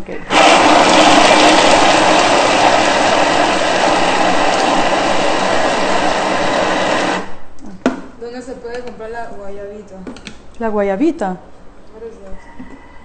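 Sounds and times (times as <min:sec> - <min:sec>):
food processor chopping: 0:00.3 - 0:07.3.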